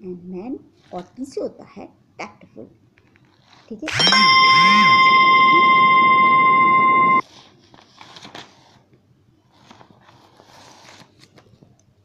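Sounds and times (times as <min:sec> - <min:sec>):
loud ringing tone: 0:03.9 - 0:07.2.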